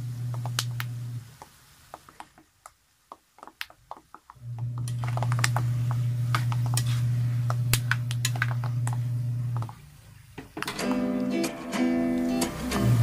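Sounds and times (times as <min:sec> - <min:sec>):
steady low hum: 0:00.0 - 0:01.5, 0:04.4 - 0:10.4
peanuts frying in oil: 0:00.0 - 0:10.6
spatula scraping a wok: 0:06.7 - 0:07.2.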